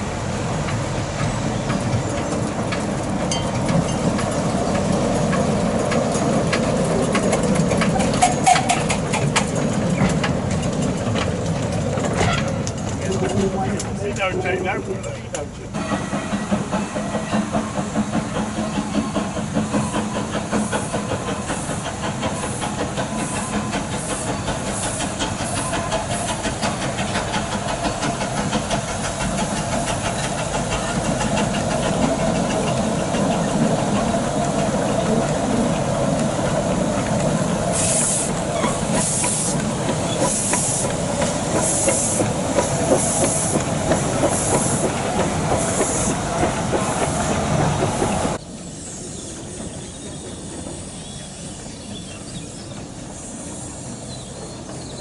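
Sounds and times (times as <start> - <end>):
steam locomotive rumbling: 0.0 - 55.0
hissing steam puffs: 15.7 - 54.8.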